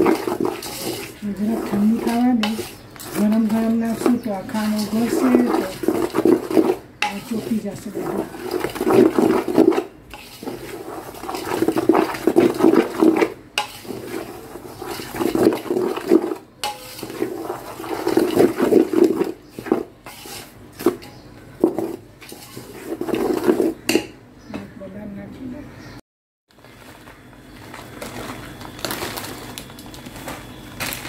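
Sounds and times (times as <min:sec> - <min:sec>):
spoon scraping bowl gritty swishing: 0:00.0 - 0:23.9.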